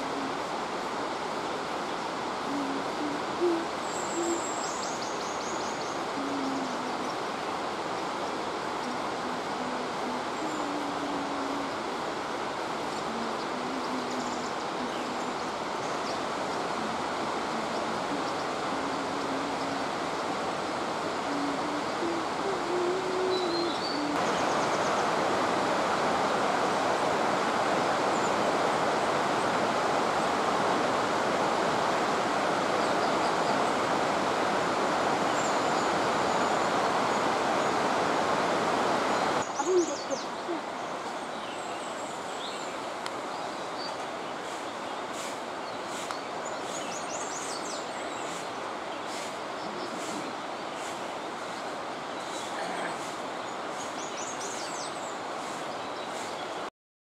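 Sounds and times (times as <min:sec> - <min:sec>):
low hooting bird calls: 0:02.4 - 0:07.3, 0:21.0 - 0:25.0, 0:39.4 - 0:42.8.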